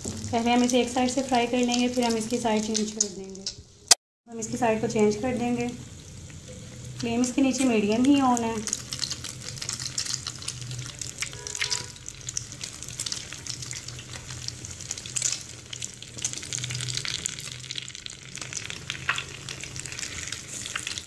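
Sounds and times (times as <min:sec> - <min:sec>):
hot oil sizzling and popping: 0:00.0 - 0:21.0
metal tongs turning food: 0:01.6 - 0:03.7, 0:06.4 - 0:11.8.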